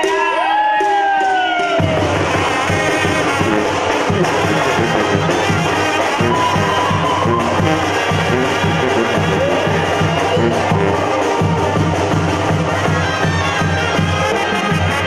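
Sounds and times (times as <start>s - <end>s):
drums steady beat: 0.0s - 15.0s
trumpets and trombones: 1.8s - 15.0s
sousaphone bass line: 1.9s - 13.1s.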